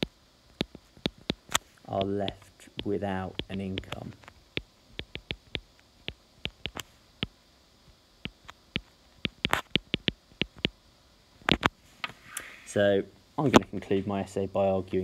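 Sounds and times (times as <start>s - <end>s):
stylus tapping on tablet screen: 0.0s - 7.3s, 8.2s - 10.7s.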